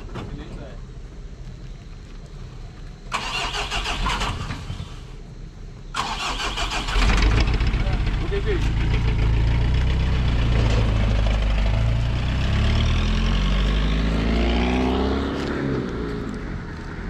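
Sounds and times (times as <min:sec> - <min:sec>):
pickup truck engine revving: 0:06.0 - 0:15.5.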